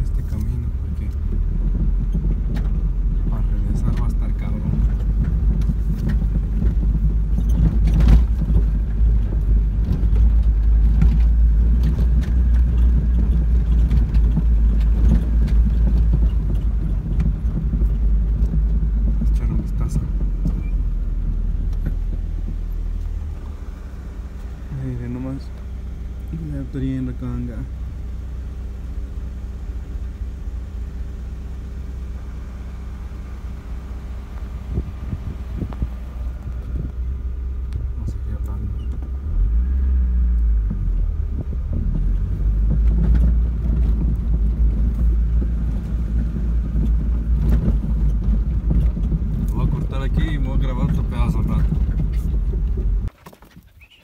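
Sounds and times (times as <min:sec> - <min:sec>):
knocks and rattles: 0:00.0 - 0:23.6, 0:40.6 - 0:53.8
car cabin low rumble: 0:00.0 - 0:54.0.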